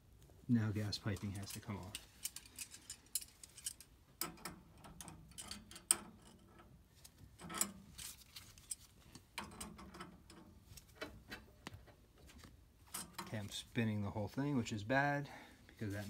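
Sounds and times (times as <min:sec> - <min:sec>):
wrench clinking on metal pipe: 0:01.2 - 0:06.4.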